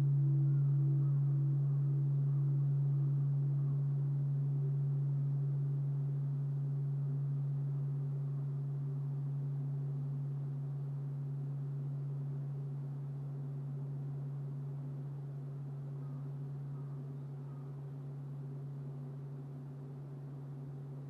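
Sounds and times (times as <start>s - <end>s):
temple bell humming: 0.0s - 6.3s.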